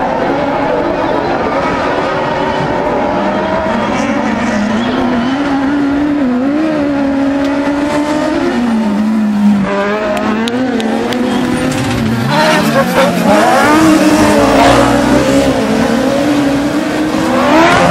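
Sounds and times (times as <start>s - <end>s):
racing buggy engines: 0.0s - 17.9s.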